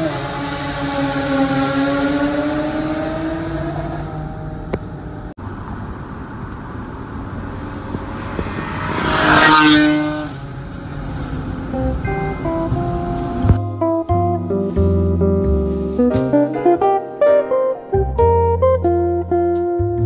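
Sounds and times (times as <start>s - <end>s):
car passing close: 0.0s - 13.6s
car engine accelerating: 0.0s - 16.9s
road noise: 0.0s - 20.0s.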